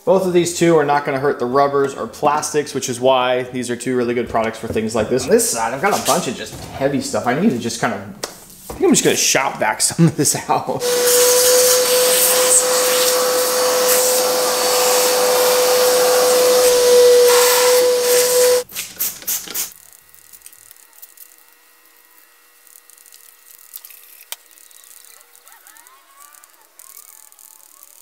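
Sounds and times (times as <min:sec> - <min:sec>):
shop vacuum whining: 0:10.8 - 0:18.7.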